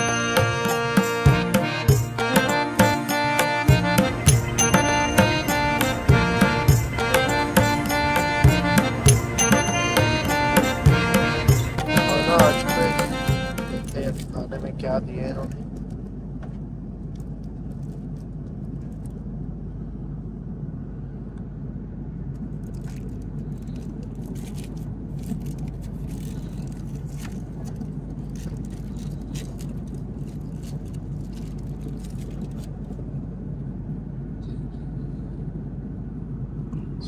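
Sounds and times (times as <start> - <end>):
airliner cabin drone: 0.0 - 37.0
light clicks and rustles: 22.4 - 33.0.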